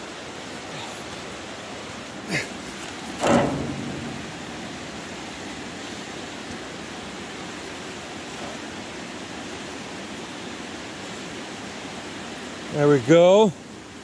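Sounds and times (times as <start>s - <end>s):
flowing water rushing: 0.0s - 14.0s
wood dropped and rope pulled taut: 2.8s - 5.3s.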